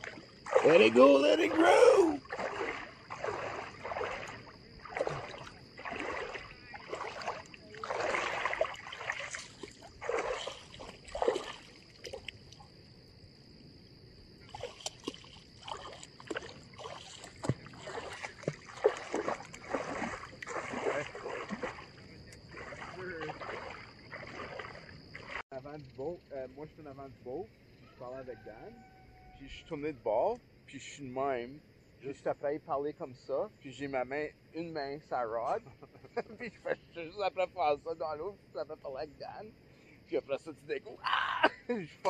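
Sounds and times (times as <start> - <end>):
water splashing around wading legs: 0.0 - 12.7, 14.4 - 25.4.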